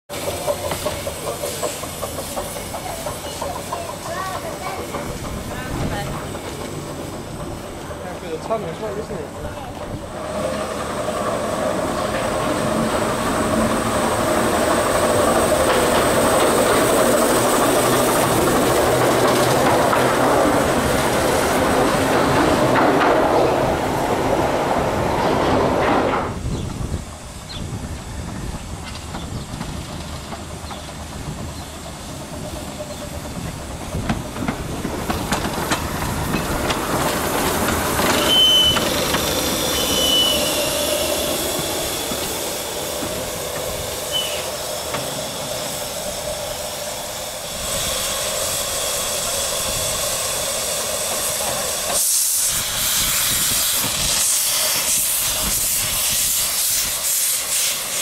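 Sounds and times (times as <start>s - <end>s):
steam locomotive hissing: 0.1s - 58.0s
short high squeals: 38.1s - 41.2s, 44.1s - 44.6s.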